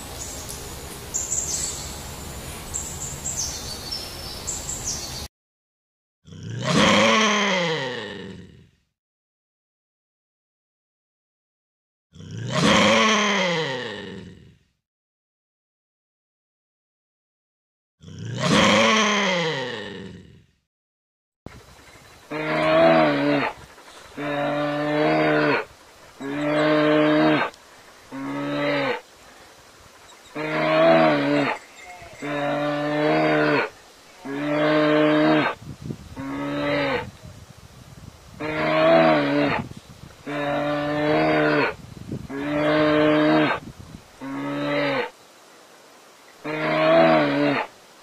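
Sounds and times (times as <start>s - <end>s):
large animal low call: 6.3s - 8.8s, 12.2s - 14.7s, 18.0s - 20.5s, 22.3s - 29.0s, 36.2s - 37.4s, 38.4s - 43.6s.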